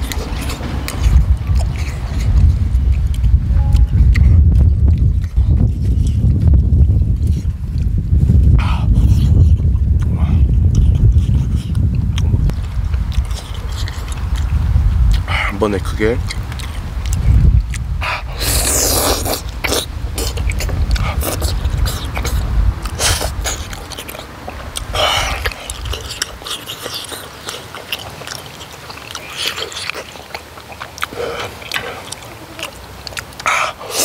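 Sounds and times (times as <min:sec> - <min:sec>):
low rumble: 0:00.0 - 0:15.5
wet chewing and smacking: 0:00.0 - 0:34.0
person slurping food: 0:18.0 - 0:34.0.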